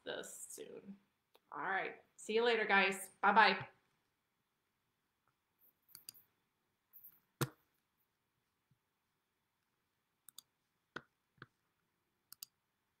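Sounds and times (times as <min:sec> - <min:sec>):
sharp clicks: 0:12.3 - 0:12.6.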